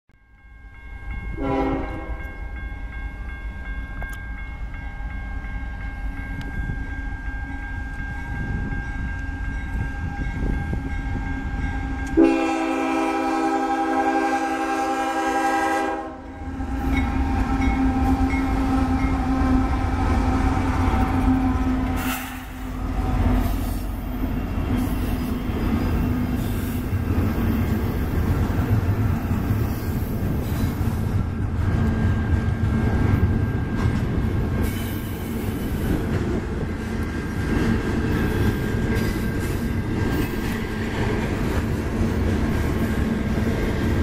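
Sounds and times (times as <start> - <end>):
train rumbling: 0.6 - 44.0
locomotive air horn blasts: 1.4 - 2.3, 12.1 - 16.6
locomotive engines and wheels passing: 16.2 - 44.0.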